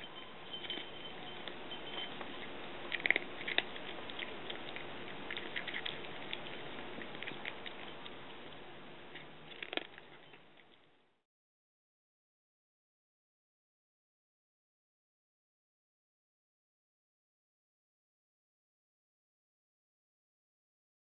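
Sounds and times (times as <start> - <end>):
cat crunching dry kibble: 0.0 - 11.0.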